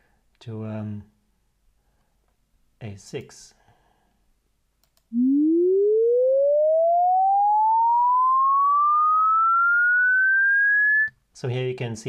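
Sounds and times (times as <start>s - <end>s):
sine tone sweeping upward: 5.1s - 11.1s.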